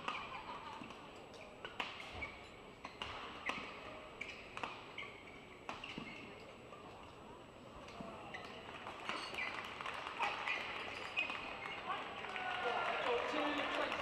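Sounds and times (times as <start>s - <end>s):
short squeaks: 4.2s - 6.5s, 8.2s - 11.8s.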